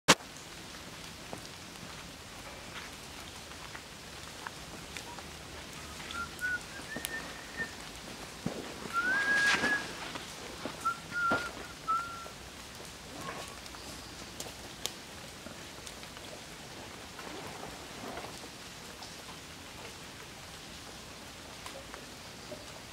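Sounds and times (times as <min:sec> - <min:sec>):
forest background: 0:00.1 - 0:22.9
short flat whistled calls: 0:05.8 - 0:07.8, 0:08.9 - 0:10.1, 0:10.8 - 0:12.4.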